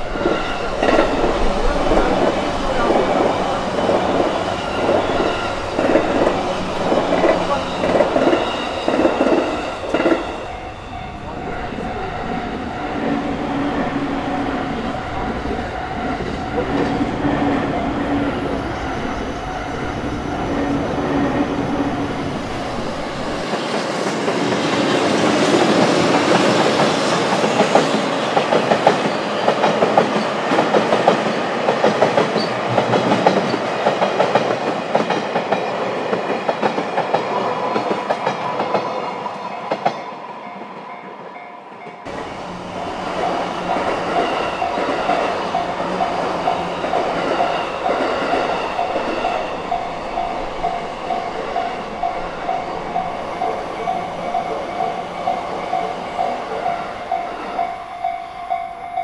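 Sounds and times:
level crossing warning bell: 0:00.0 - 0:23.4, 0:38.6 - 0:59.0
train wheels clacking over rails: 0:00.0 - 0:41.2, 0:41.8 - 0:59.0.

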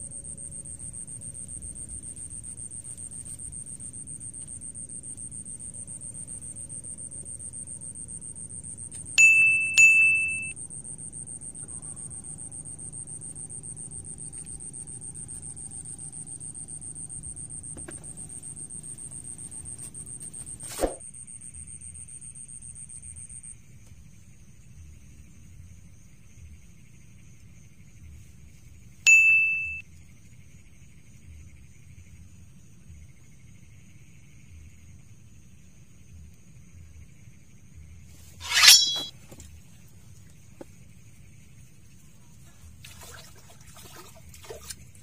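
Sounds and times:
high-pitched whine: 0:00.0 - 0:20.2, 0:29.1 - 0:29.8, 0:38.4 - 0:39.1
fishing rod bite bell ringing: 0:09.2 - 0:10.6, 0:29.1 - 0:29.8, 0:38.4 - 0:39.1.

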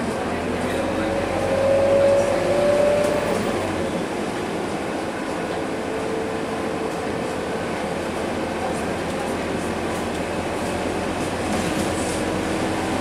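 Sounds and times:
bus diesel engine running: 0:00.0 - 0:13.0.

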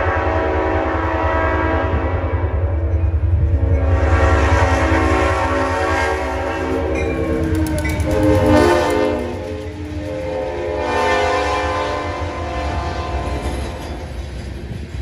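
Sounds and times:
train air horn blasts: 0:00.0 - 0:02.6, 0:03.5 - 0:13.5.

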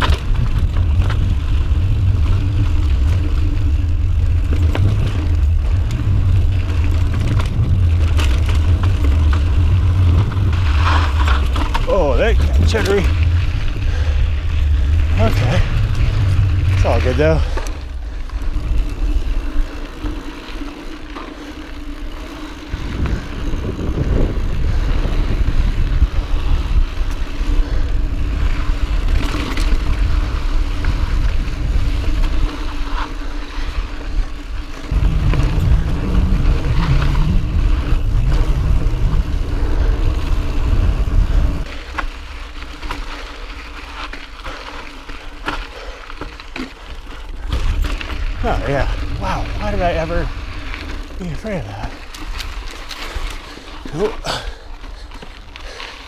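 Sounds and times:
wind buffeting microphone: 0:00.0 - 0:21.0, 0:21.7 - 0:41.7
bike clicks and rattles: 0:00.0 - 0:56.0
bike tyre noise on dirt: 0:00.0 - 0:56.0.

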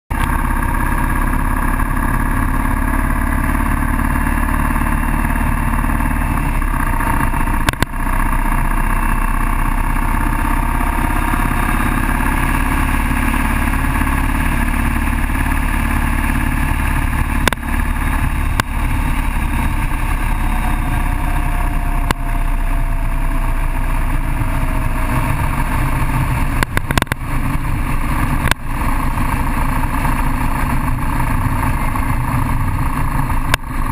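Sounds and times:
motorcycle engine running: 0:00.1 - 0:33.9
wind noise on microphone: 0:09.7 - 0:33.9.

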